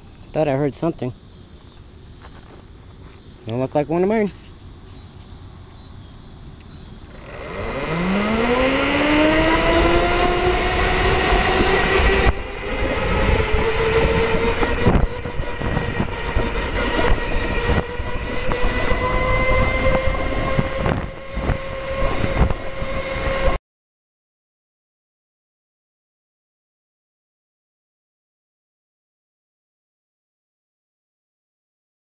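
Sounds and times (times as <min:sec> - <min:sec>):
road and wind noise: 0:00.0 - 0:23.6
electric motor whining: 0:06.6 - 0:23.6.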